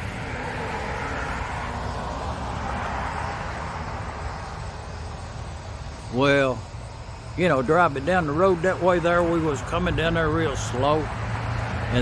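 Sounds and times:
vehicle driving past: 0.0 - 5.7.

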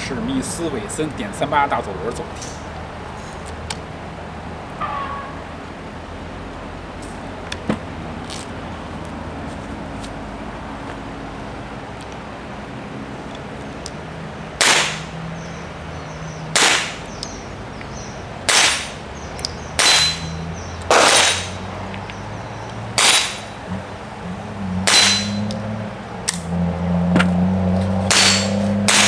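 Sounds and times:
gunshots: 14.6 - 15.1, 16.6 - 17.0, 18.5 - 19.0, 20.9 - 21.6, 28.1 - 29.0.

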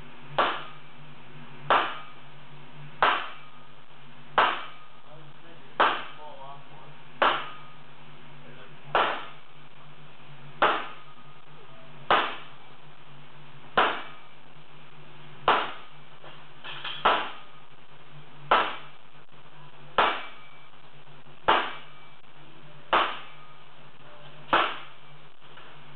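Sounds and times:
steady low hum: 0.0 - 25.9
sledgehammer striking hot iron: 0.2 - 1.0, 1.6 - 2.3, 3.0 - 5.1, 5.8 - 6.4, 7.2 - 7.9, 8.8 - 9.5, 10.6 - 12.6, 13.7 - 14.4, 15.4 - 17.7, 18.4 - 19.0, 19.9 - 20.8, 21.4 - 22.2, 22.9 - 23.6, 24.5 - 25.4.

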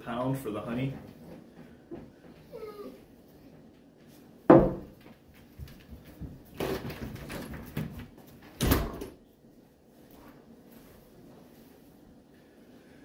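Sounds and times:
shuffling and clatter: 0.1 - 8.6.

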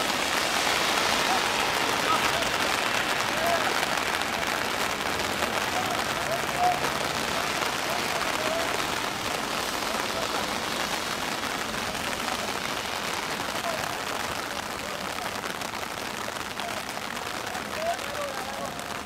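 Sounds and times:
steady outdoor hiss: 0.0 - 19.0
distant shouts: 0.7 - 15.4.

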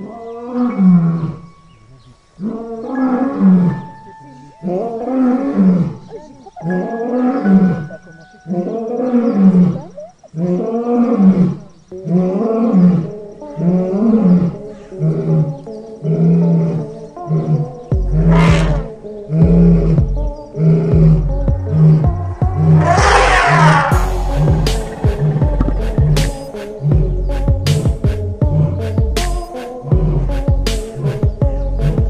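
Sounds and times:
lion roaring: 0.3 - 1.5, 2.4 - 4.0, 4.6 - 6.1, 8.5 - 27.6
music with deep pulsing bass: 17.5 - 32.0
sharp crash: 22.7 - 26.6.

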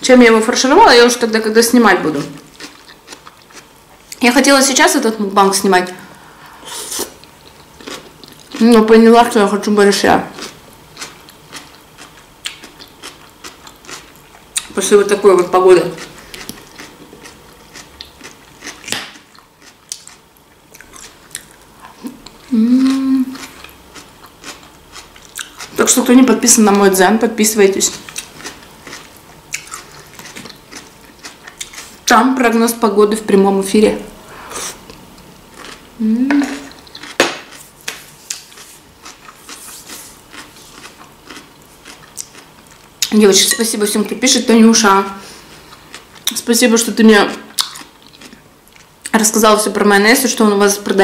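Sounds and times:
crunching and chewing salad: 1.4 - 4.4, 6.4 - 32.5, 34.6 - 44.6, 45.2 - 49.4
person humming: 22.4 - 23.4, 36.0 - 36.7.

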